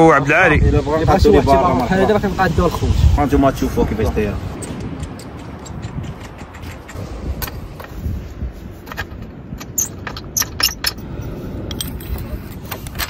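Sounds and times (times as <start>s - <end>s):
low rumble: 0.6s - 13.0s
sharp metal clicks: 4.6s - 7.6s
metal pipes clinking and scraping: 5.9s - 13.0s.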